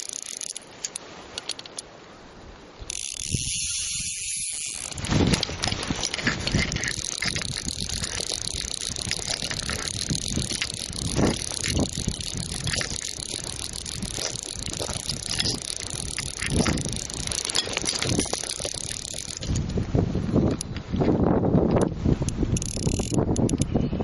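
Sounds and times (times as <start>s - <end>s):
fishing reel drag ticking: 0.0s - 1.9s, 2.8s - 19.8s, 21.8s - 23.8s.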